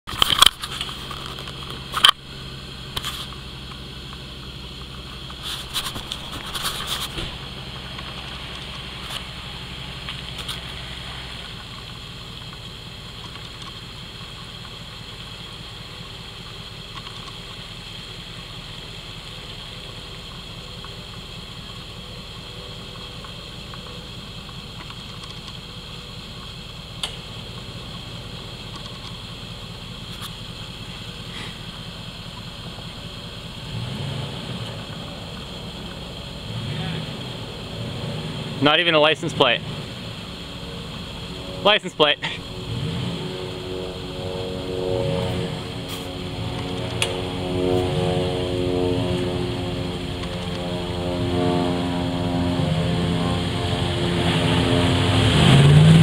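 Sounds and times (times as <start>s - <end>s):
pickup engine idling: 0.0s - 56.0s
brief rustling: 5.3s - 9.3s.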